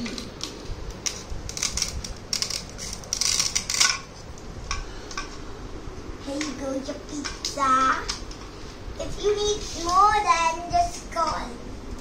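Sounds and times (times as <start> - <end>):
plastic toys clattering and scraping: 0.3 - 4.2.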